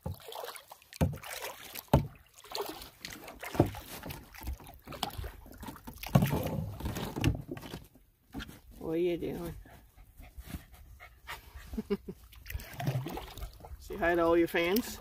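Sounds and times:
canoe paddle splashing in water: 0.0 - 8.5, 12.2 - 15.0.

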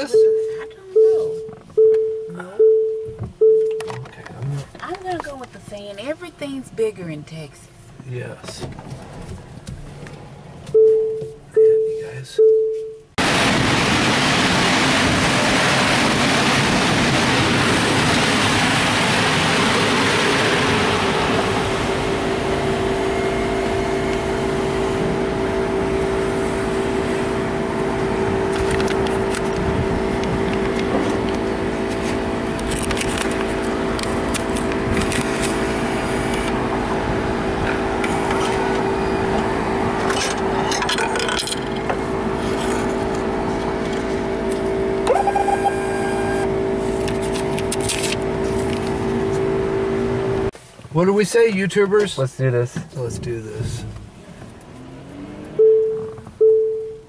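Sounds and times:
car wash machinery hum: 2.9 - 12.4, 13.0 - 57.0
short rising beep: 10.7 - 13.1, 45.0 - 46.5, 55.5 - 57.0.

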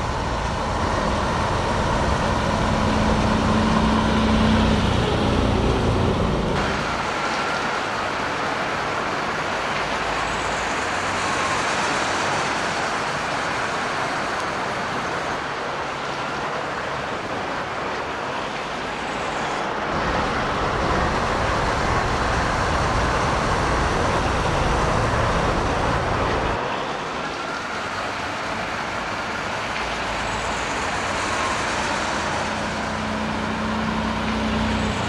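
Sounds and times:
low rumble of passing vehicle: 0.0 - 6.7
hiss of passing vehicles: 0.0 - 35.0.

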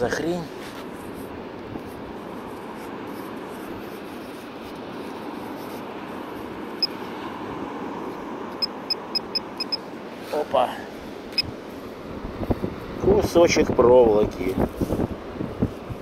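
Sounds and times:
sea surf: 0.0 - 16.0
wind: 0.0 - 16.0
metal detector beep: 6.8 - 7.0, 8.6 - 9.8.

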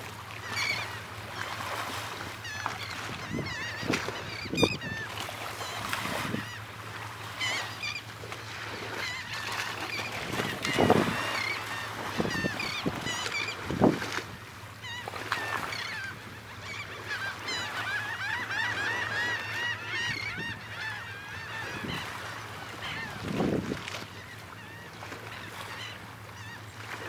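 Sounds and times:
birds chirping: 0.4 - 8.1, 8.7 - 13.6.

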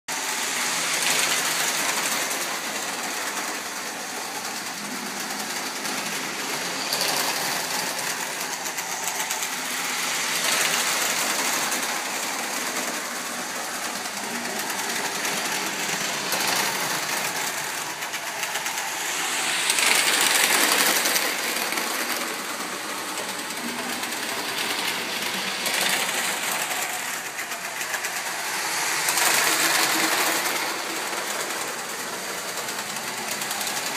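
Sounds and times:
model train whirring and rattling: 0.1 - 33.9.

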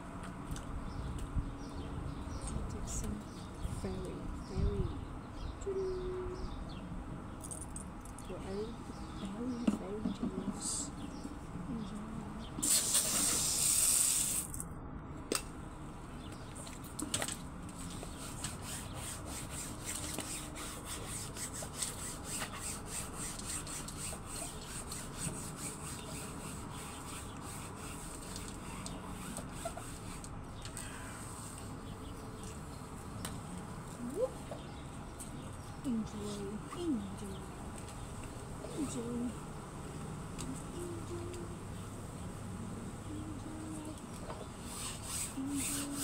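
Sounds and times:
loud hiss: 12.6 - 14.5
sponge scrubbing: 18.0 - 30.2, 44.7 - 46.0.

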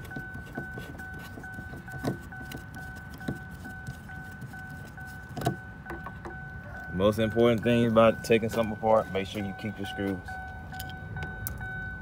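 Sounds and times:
car warning chime beeping: 0.0 - 12.0.

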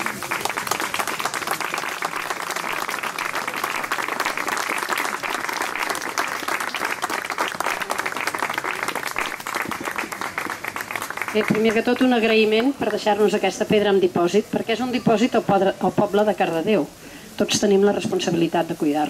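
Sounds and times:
people applauding: 0.0 - 13.1.

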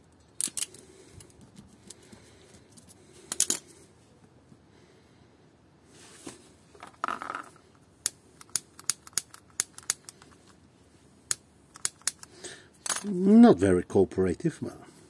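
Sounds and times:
sharp clicks: 8.0 - 10.4.

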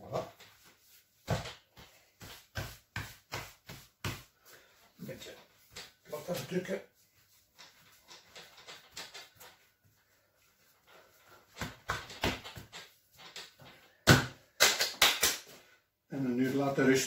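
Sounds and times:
hands patting bread dough: 0.1 - 6.7.

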